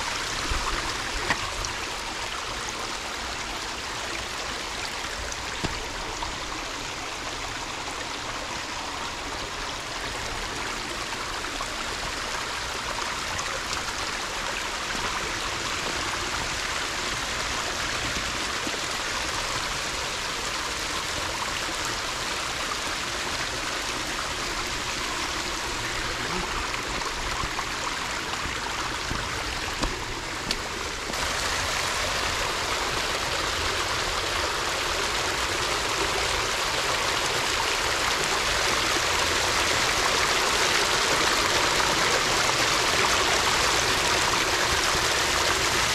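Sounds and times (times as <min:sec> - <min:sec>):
creek babbling over stones: 0:00.0 - 0:45.9.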